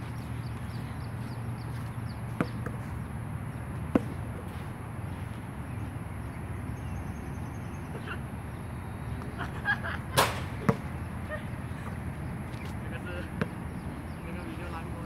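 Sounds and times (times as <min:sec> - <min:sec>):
basketball bouncing: 0:02.4 - 0:02.9, 0:03.9 - 0:04.3, 0:10.2 - 0:10.9, 0:13.4 - 0:13.6.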